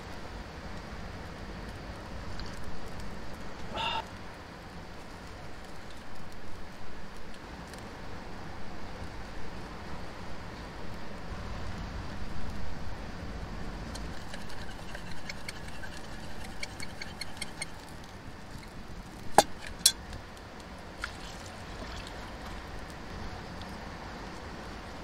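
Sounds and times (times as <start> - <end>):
metal pot clinking: 14.0 - 17.8, 19.4 - 20.0.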